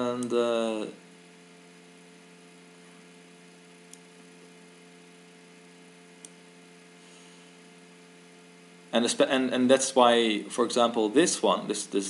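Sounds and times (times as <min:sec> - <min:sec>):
faint electrical hum: 0:00.0 - 0:12.0
computer mouse clicks: 0:06.2 - 0:06.4.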